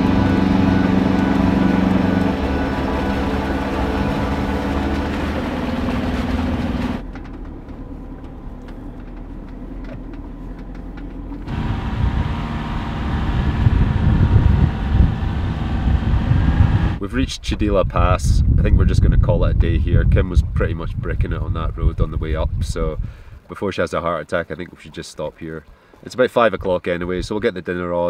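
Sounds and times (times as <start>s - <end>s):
car engine droning inside cab: 0.0s - 17.0s
wind buffeting microphone: 11.5s - 23.5s.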